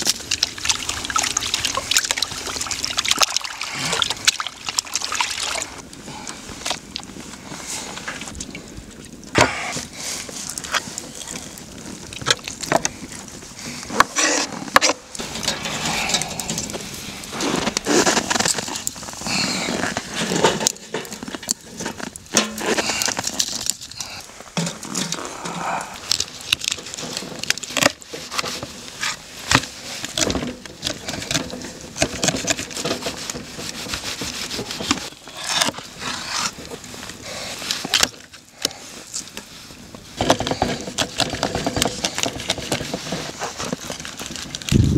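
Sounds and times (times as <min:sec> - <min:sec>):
firewood laid into fire pit: 0:13.8 - 0:33.5.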